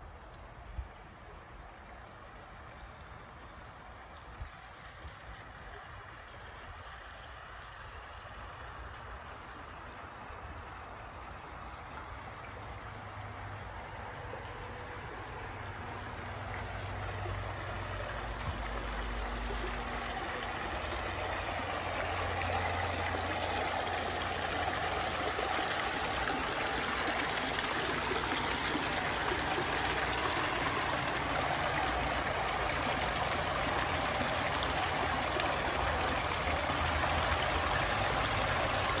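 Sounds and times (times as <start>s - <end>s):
water splashing into pond: 0.0s - 39.0s.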